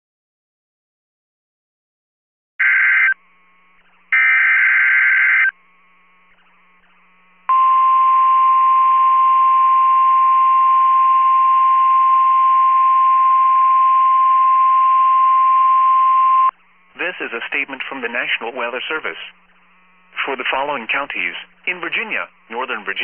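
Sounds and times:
steady alarm tone: 2.6 - 16.6.

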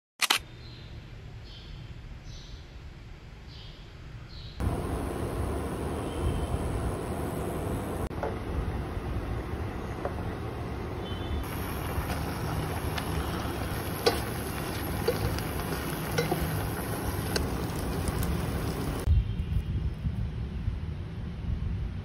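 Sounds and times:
pot simmering: 4.6 - 19.1
chopsticks clicking against steel pot: 13.9 - 18.3.

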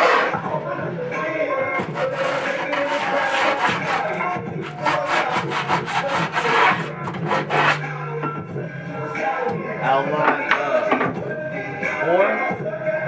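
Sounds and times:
music with singing: 0.0 - 13.0
scratchy writing on poster board: 1.8 - 7.8.

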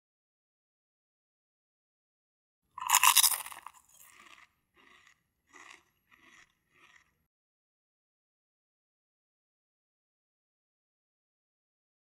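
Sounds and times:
pizza crust crunch: 2.8 - 7.2
chewing crunches: 2.8 - 7.3.

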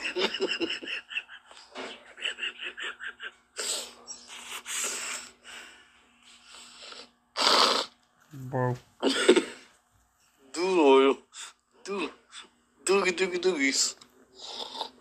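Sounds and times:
man laughing: 0.0 - 4.0.

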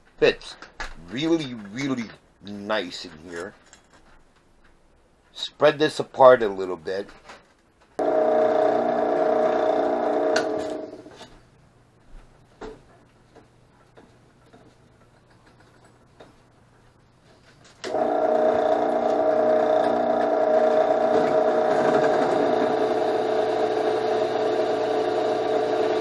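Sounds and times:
drill press motor humming: 8.0 - 11.3, 17.8 - 26.0.

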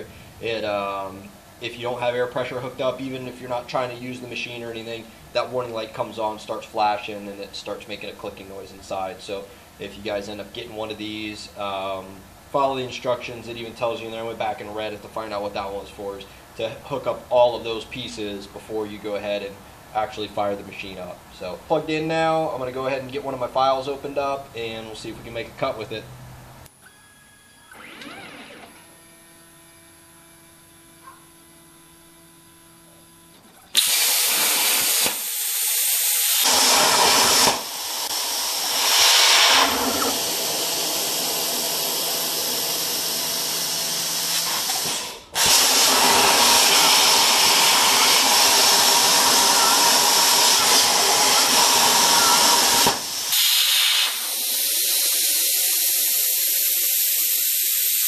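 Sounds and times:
plasma torch hissing: 33.7 - 58.0.

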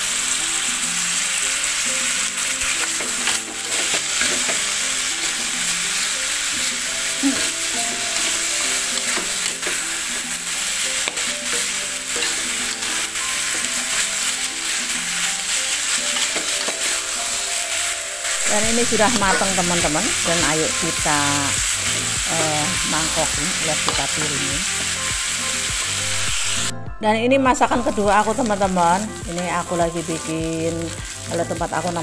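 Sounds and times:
food sizzling in a wok: 0.0 - 26.7, 27.6 - 32.0
metal spatula scraping a pan: 2.6 - 26.7.

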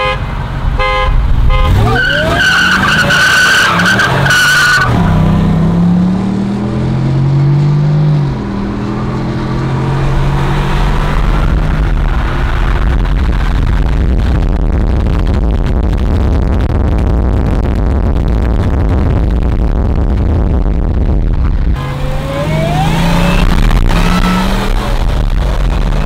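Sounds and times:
engines at full throttle: 0.3 - 26.0
tire squeal: 1.6 - 5.3.

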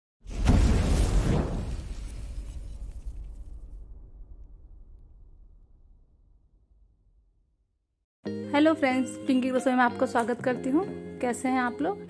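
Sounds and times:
whooshing burst with deep rumble: 0.3 - 7.7.

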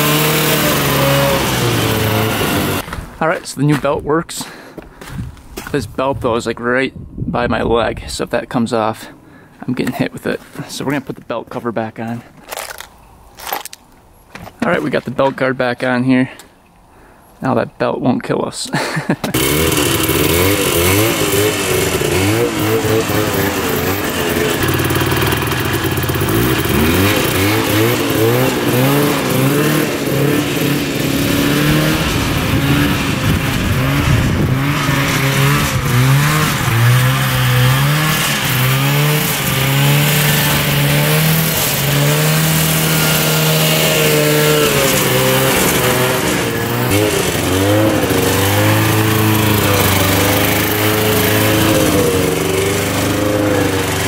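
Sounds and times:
two-stroke engine revving: 0.0 - 2.8, 19.3 - 54.0.

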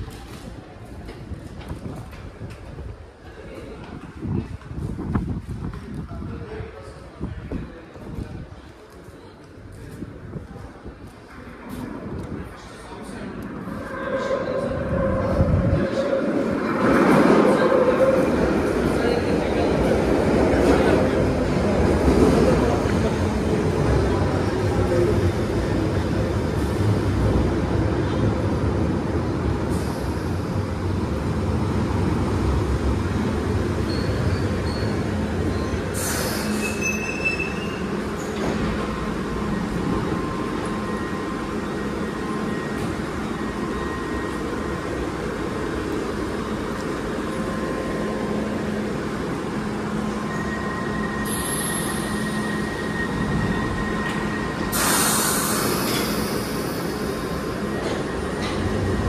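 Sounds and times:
train running noise: 0.0 - 59.0
pneumatic door hiss: 35.9 - 37.6, 54.6 - 56.7.

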